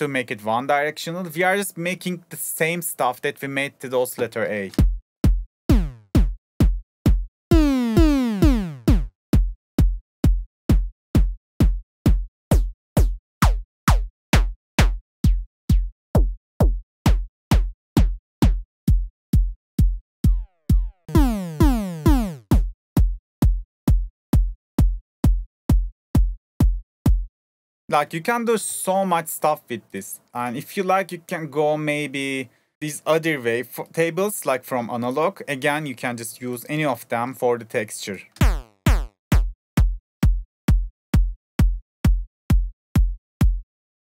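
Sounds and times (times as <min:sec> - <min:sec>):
synthesised kick drum looping: 0:04.8 - 0:18.6, 0:20.2 - 0:22.7, 0:38.4 - 0:43.6
pitch-falling synth note: 0:07.6 - 0:09.0, 0:21.1 - 0:22.4.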